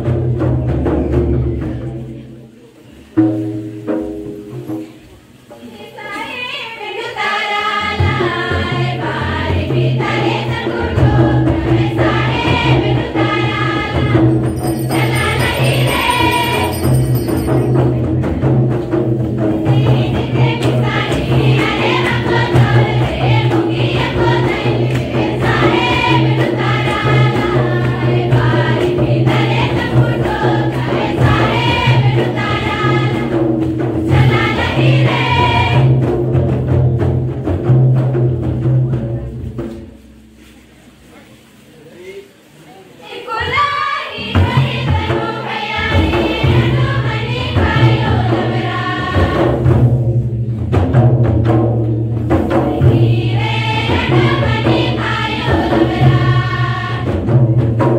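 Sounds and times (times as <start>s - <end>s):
drums: 0.0s - 57.9s
group singing folk song: 5.5s - 17.3s, 18.9s - 36.8s, 43.0s - 50.3s, 51.6s - 57.9s.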